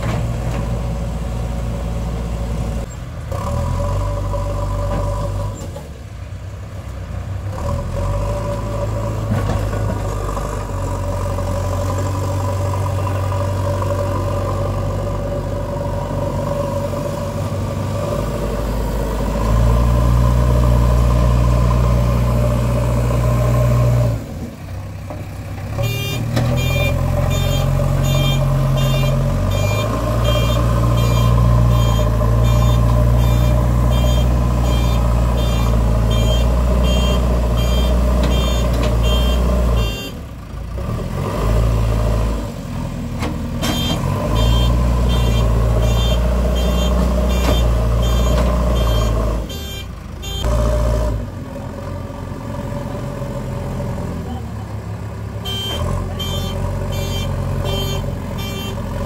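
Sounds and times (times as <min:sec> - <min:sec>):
diesel engine running under load: 0:00.0 - 0:59.0
reversing alarm beeps: 0:25.9 - 0:40.0, 0:43.7 - 0:50.5.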